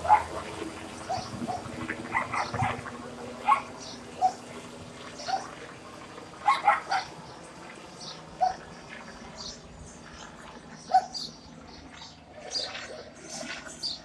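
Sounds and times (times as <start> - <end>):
dog barking: 0.0 - 0.4, 1.1 - 4.4, 5.2 - 5.5, 6.4 - 7.1, 8.4 - 8.7, 10.9 - 11.2
helicopter low hum: 0.0 - 14.0.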